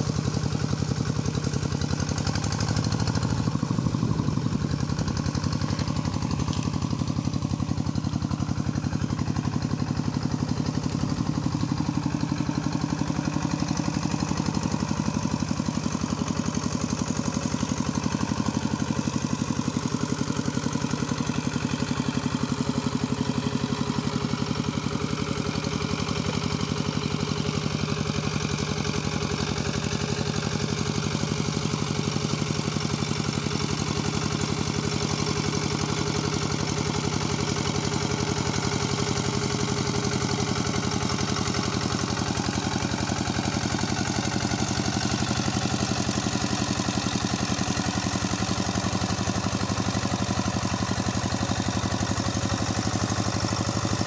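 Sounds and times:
diesel engine chugging: 0.0 - 54.0.

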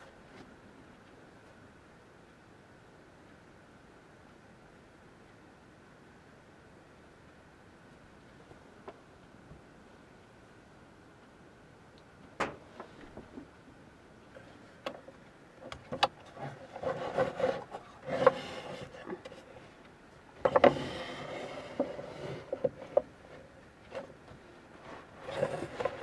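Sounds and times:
wood rubbing and sliding: 14.4 - 26.0.

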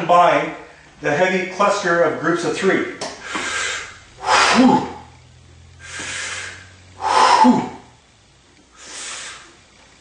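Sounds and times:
man breathing heavily: 3.1 - 5.2, 5.8 - 7.9, 8.7 - 9.6.

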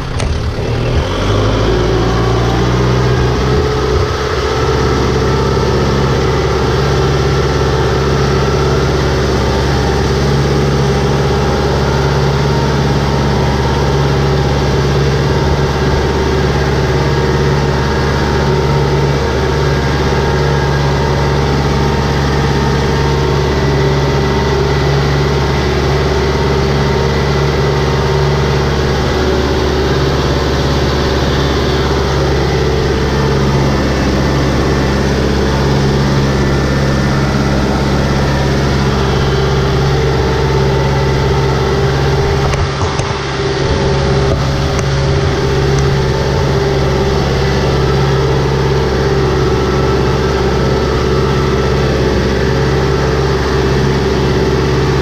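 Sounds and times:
tractor engine revving: 0.0 - 55.0
wheels splashing muddy water: 0.0 - 55.0.

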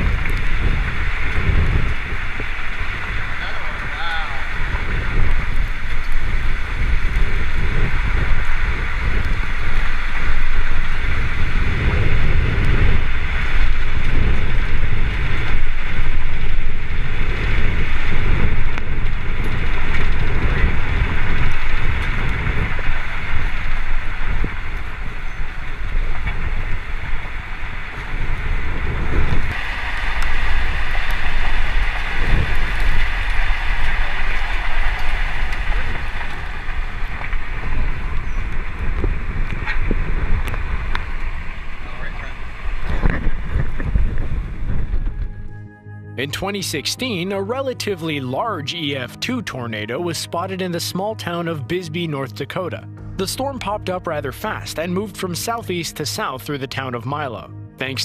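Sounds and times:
steady hiss: 0.0 - 45.0
storm wind buffeting microphone: 0.0 - 51.7.

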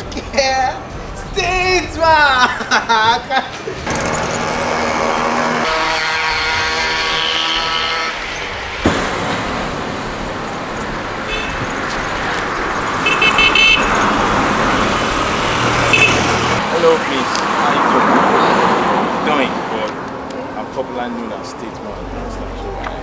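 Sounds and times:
street traffic noise: 0.0 - 23.0
vehicle horn tone: 4.3 - 8.7, 11.2 - 11.9, 13.0 - 14.4, 15.7 - 16.6.

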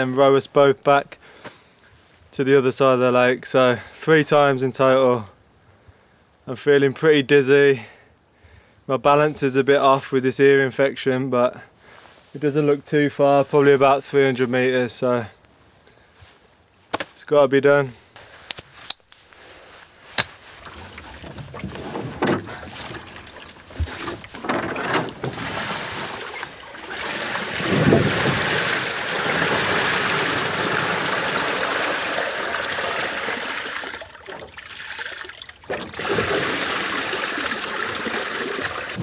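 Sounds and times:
water splashing around hull: 20.2 - 39.0
boat knocking on wooden rails: 20.7 - 26.3.

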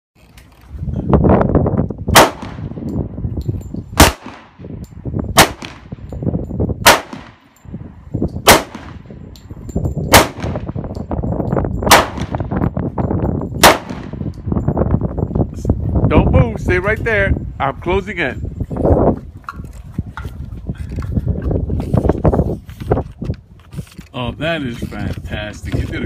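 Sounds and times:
pistol shots with echo: 2.1 - 2.8, 4.0 - 4.6, 5.3 - 6.0, 6.8 - 7.5, 8.4 - 9.1, 10.1 - 10.8, 11.9 - 12.5, 13.6 - 14.3.

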